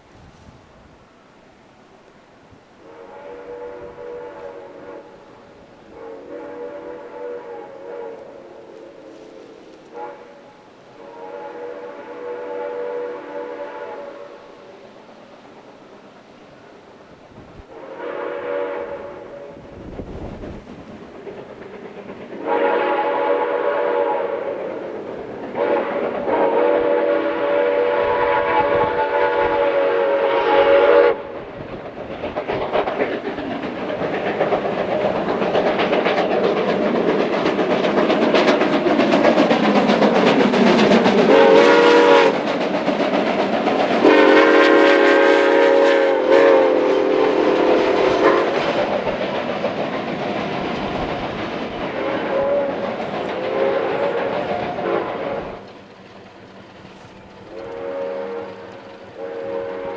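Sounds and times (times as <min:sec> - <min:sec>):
steam locomotive running past: 0:00.0 - 0:59.9
steam whistle blowing: 0:02.8 - 0:14.7, 0:17.7 - 0:19.8, 0:22.4 - 0:31.4, 0:41.3 - 0:42.4, 0:44.0 - 0:48.8, 0:51.9 - 0:55.6, 0:57.5 - 0:59.9
train cars clattering over rails: 0:19.6 - 0:23.8, 0:31.4 - 0:46.3, 0:47.1 - 0:59.9.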